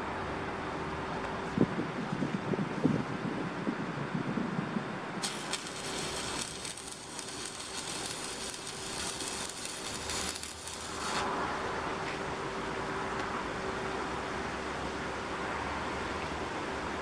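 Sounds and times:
arc welding crackle and hiss: 5.2 - 13.4.

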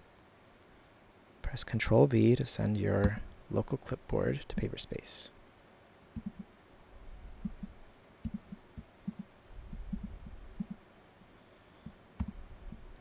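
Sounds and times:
keyboard key presses: 3.0 - 3.2, 6.2 - 6.5, 7.4 - 10.8, 12.2 - 12.8.

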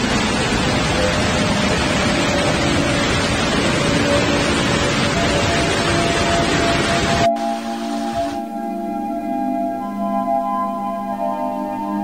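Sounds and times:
waterfall rushing: 0.0 - 8.5.

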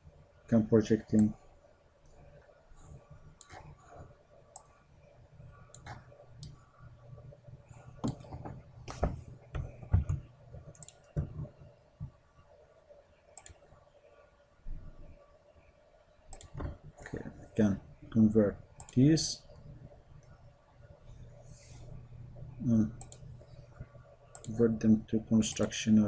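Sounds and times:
faint low hum: 0.0 - 26.0
computer mouse clicking: 3.4 - 3.8, 4.5 - 4.8, 5.7 - 6.6, 8.0 - 11.6, 13.4 - 13.6, 16.3 - 16.8, 23.0 - 24.6, 25.4 - 25.8.

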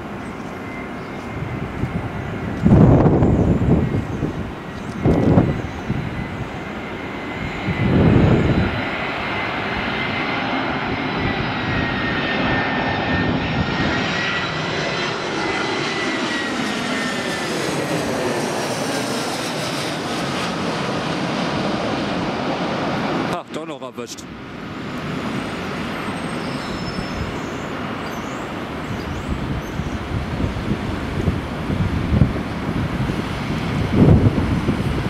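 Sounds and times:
jet airliner roar with fan whine: 0.0 - 35.0
wind rumble on microphone: 0.8 - 14.6, 26.1 - 27.8, 28.6 - 35.0.

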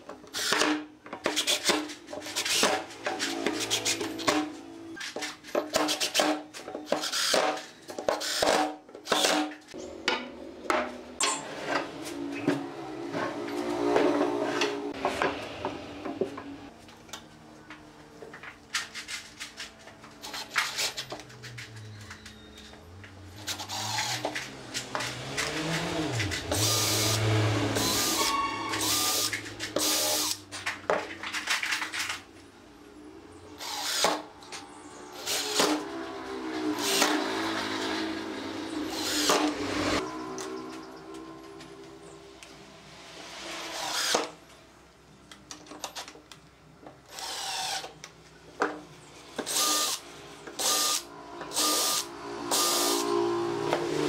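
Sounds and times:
impact driver driving screws: 5.6 - 9.6, 23.4 - 30.4
cordless drill drilling: 23.4 - 24.4, 26.1 - 30.4, 33.6 - 34.2, 35.2 - 35.8, 36.8 - 37.2, 38.9 - 39.6, 43.7 - 44.3, 47.1 - 48.0, 49.4 - 50.0, 50.6 - 53.2.

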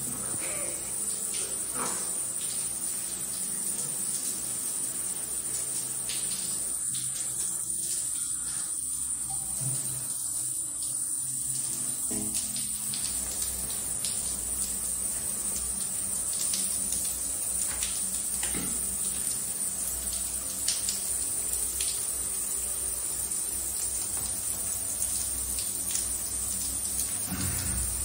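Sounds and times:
water splashing on shower floor: 11.6 - 22.4, 23.7 - 28.0.

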